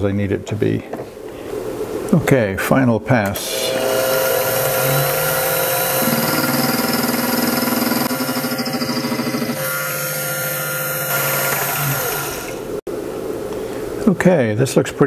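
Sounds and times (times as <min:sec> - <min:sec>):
end mill cutting steel: 0:03.4 - 0:12.8
milling machine spindle motor: 0:03.4 - 0:12.8.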